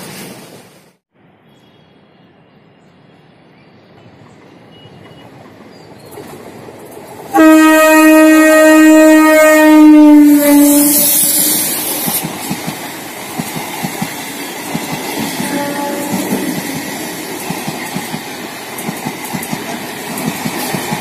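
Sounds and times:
train rumble: 4.0 - 21.0
train horn blast: 7.3 - 12.1, 15.2 - 17.1.

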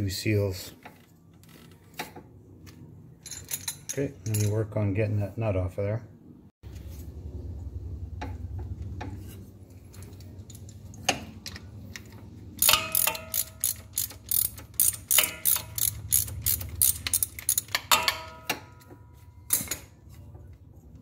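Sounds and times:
low steady hum: 0.0 - 21.0
socket ratchet clicking: 12.6 - 18.3.

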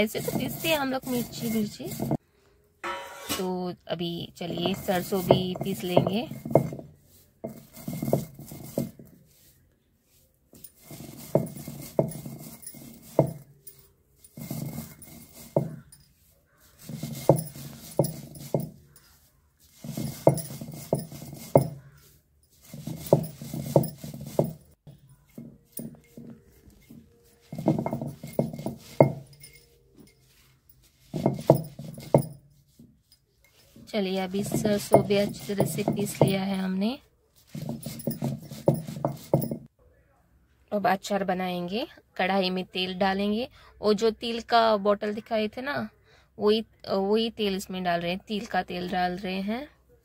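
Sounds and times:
grinding stone rolling over slab: 0.0 - 2.2, 4.4 - 9.2, 10.6 - 16.0, 16.8 - 30.1, 30.9 - 32.8, 33.7 - 36.5, 37.5 - 39.7.

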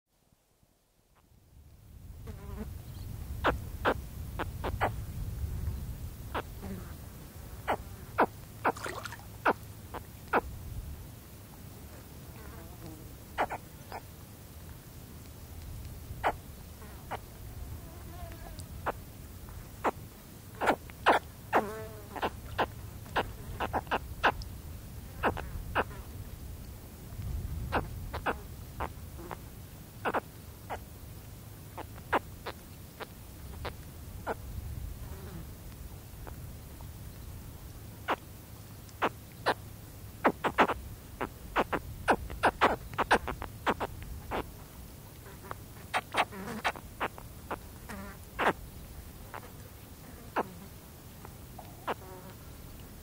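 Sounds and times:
faint low wind: 0.1 - 53.0
baby caiman contact calls: 3.4 - 5.0, 7.6 - 10.5, 13.4 - 14.0, 16.2 - 16.4, 17.0 - 17.3, 20.6 - 24.4, 25.2 - 26.0, 27.7 - 29.4, 30.0 - 30.8, 39.0 - 39.6, 40.2 - 44.5, 45.3 - 48.6, 51.6 - 52.2
baby caiman chirps: 13.4 - 14.0, 20.6 - 21.6, 30.0 - 30.8, 40.2 - 44.5.

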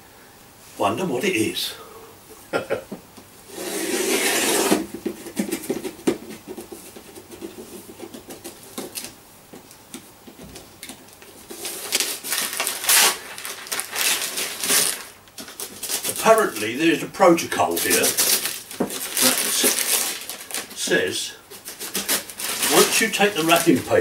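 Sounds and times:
wrapping paper crinkling and rustling: 11.1 - 24.0.

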